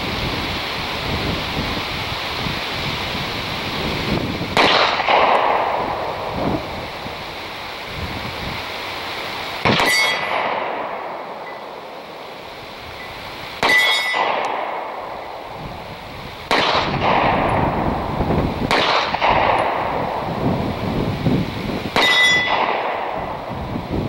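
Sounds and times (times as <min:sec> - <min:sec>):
pistol shots: 0:04.6 - 0:06.2, 0:09.6 - 0:11.4, 0:13.6 - 0:15.0, 0:16.5 - 0:17.8, 0:18.7 - 0:20.2, 0:22.0 - 0:23.2
bullet ringing on steel plate: 0:09.8 - 0:10.4, 0:13.0 - 0:14.6, 0:22.0 - 0:22.7.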